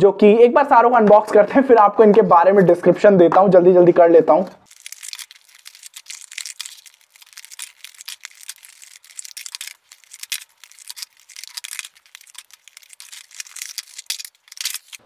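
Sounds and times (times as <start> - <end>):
packaging rustling and crinkling: 4.7 - 15.0.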